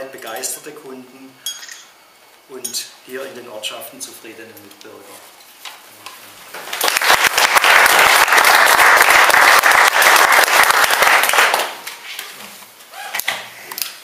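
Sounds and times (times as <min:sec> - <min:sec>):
audience applause: 0:06.7 - 0:11.8.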